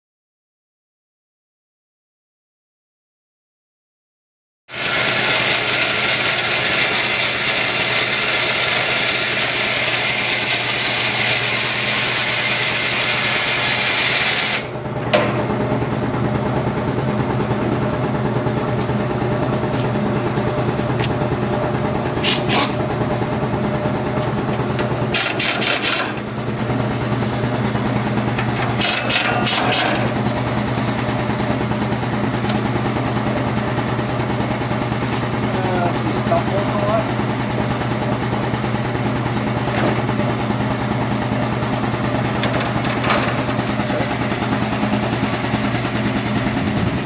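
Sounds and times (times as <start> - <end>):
power drill bursts: 4.7 - 14.8, 25.0 - 26.3, 28.7 - 30.2
machine hiss and hum: 4.8 - 38.3.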